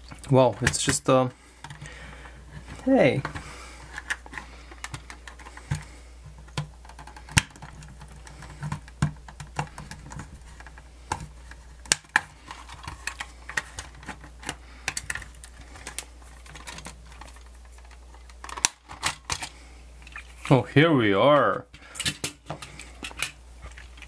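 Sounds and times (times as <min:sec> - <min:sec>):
plastic case clicks and knocks: 0:04.0 - 0:12.9.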